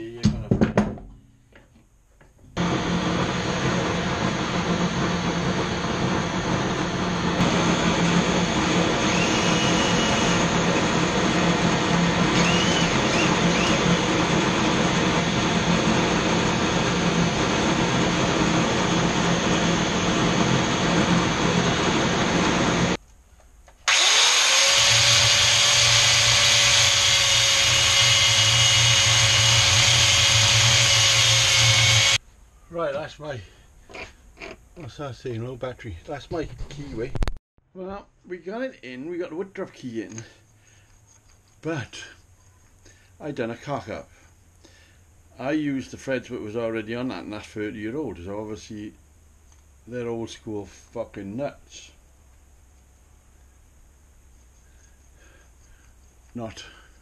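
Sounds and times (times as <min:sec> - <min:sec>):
power tool running at lathe: 0:02.6 - 0:23.0, 0:23.9 - 0:32.2
angle grinder grinding metal: 0:07.2 - 0:17.3, 0:23.9 - 0:32.2.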